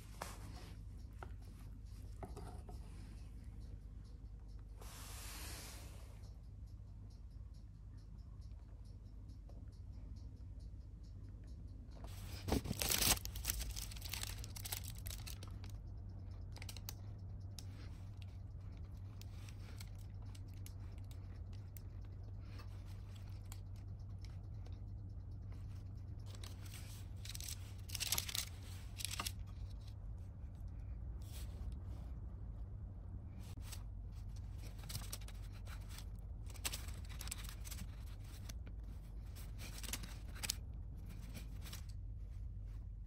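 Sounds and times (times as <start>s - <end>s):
low steady hum: 0.0s - 43.0s
plastic piping bag crinkling: 12.2s - 15.8s.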